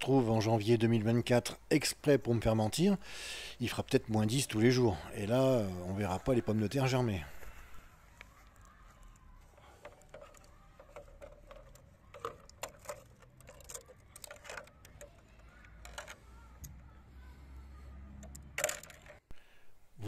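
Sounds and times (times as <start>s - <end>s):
thin ice cracking and clinking: 9.8s - 16.2s.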